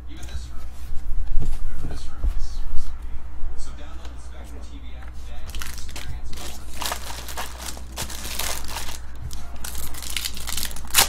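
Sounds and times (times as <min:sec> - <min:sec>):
low steady hum: 0:00.0 - 0:11.0
foil wrapper crinkling and tearing: 0:05.5 - 0:11.0.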